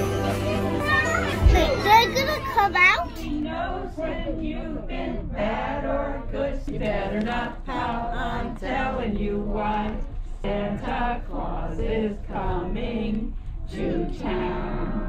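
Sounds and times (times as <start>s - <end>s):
people singing a song: 3.2s - 15.0s.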